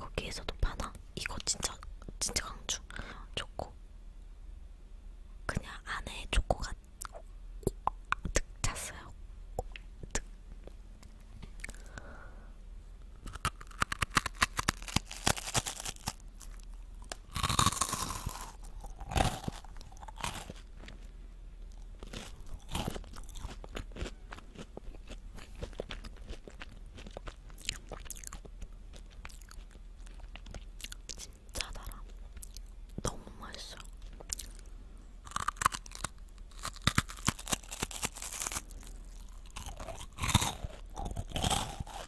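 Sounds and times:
crunching and chewing wafer: 11.6 - 12.0, 13.2 - 42.0.

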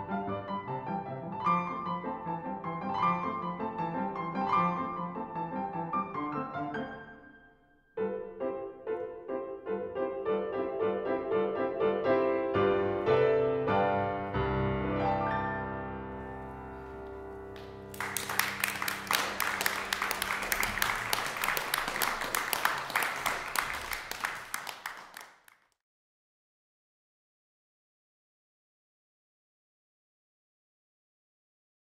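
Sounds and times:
grand piano playing: 0.0 - 25.0
audience applause: 17.5 - 25.8.

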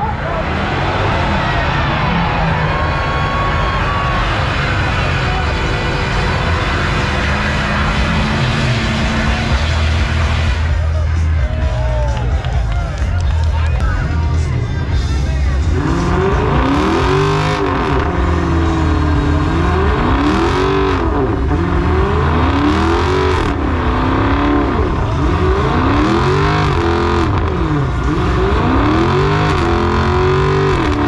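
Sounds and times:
steady rushing noise: 0.0 - 12.4
car engine revving: 0.0 - 31.0.

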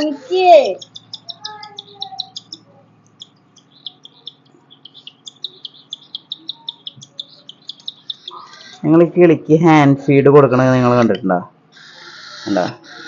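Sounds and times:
cockatiel chick chirping: 0.0 - 8.8, 11.8 - 13.0.

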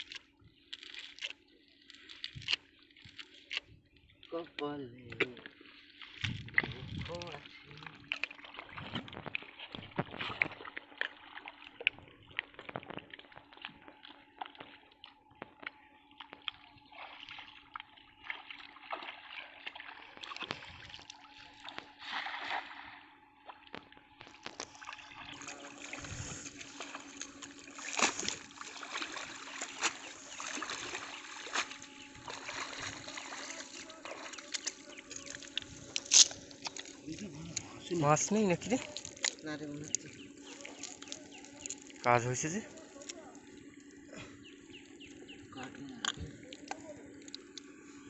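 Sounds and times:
wading through water and mud: 0.0 - 48.0
short sharp water splashes: 16.9 - 23.1, 24.3 - 37.7.

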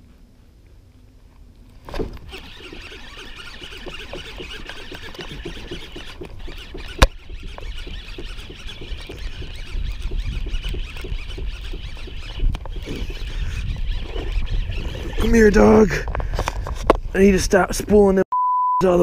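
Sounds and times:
fishing reel ticking rattle: 2.3 - 15.5.

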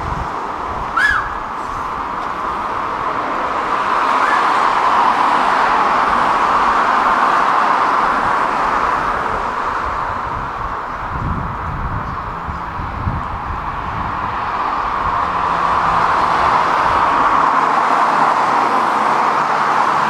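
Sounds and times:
traffic tyre noise: 0.0 - 20.0.

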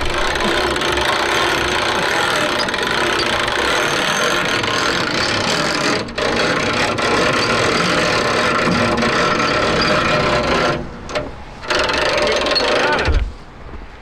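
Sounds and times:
truck engine idling: 0.0 - 5.4.

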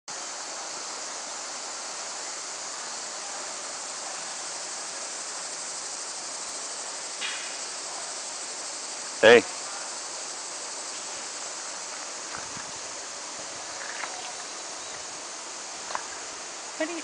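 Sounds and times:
creek rushing over stones: 10.4 - 17.0.

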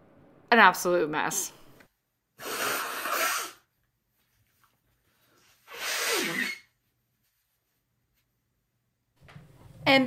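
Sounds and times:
woman blowing her nose: 2.4 - 3.7, 5.6 - 6.8.

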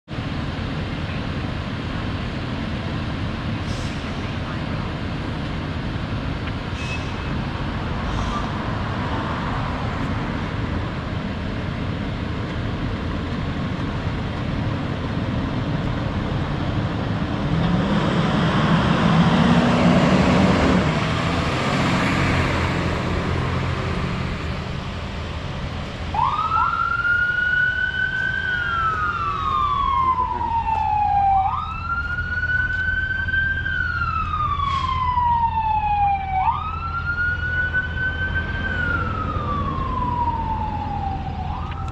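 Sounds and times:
fire engine diesel engine revving: 3.2 - 26.2
siren wailing: 26.1 - 41.9.

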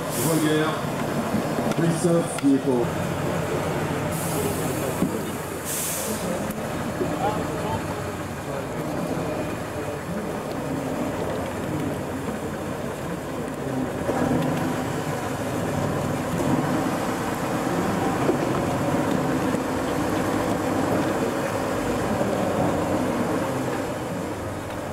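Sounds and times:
diesel truck engine running: 0.0 - 24.9.

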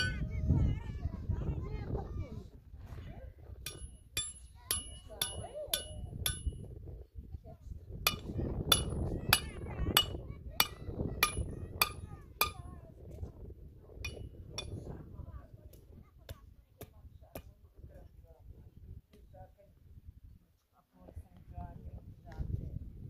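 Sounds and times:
hammer ringing on metal: 3.7 - 6.6, 8.1 - 12.7.

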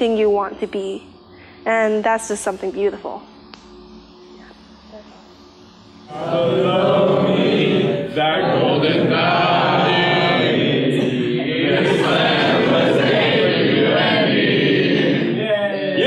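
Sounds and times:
young people chanting: 6.1 - 16.0.

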